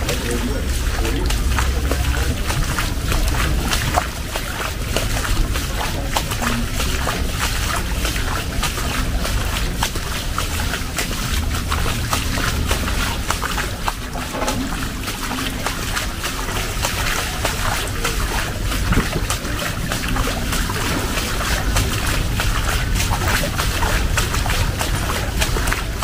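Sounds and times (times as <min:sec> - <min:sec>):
low rumble: 0:00.0 - 0:08.0
heavy rain splashing: 0:00.0 - 0:26.0.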